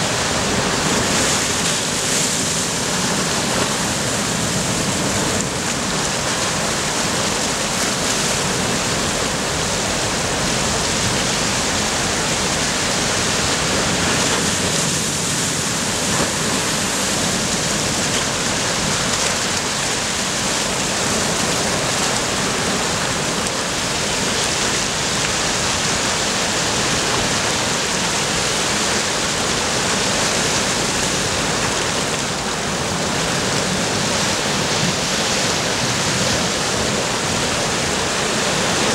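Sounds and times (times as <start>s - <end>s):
waves breaking on rocky shore: 0.0s - 38.9s.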